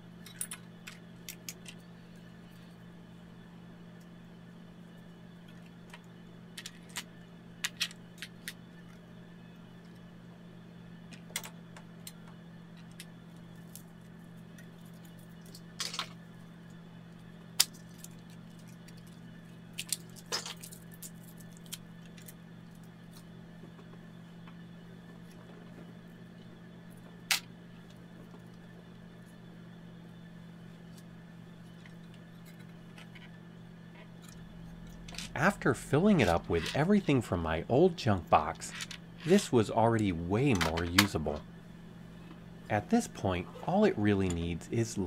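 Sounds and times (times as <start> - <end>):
steady low hum: 0.0 - 45.0.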